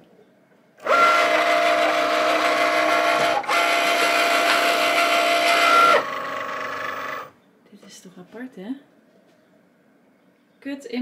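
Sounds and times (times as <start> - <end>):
cutting machine motors whining: 0.8 - 7.3.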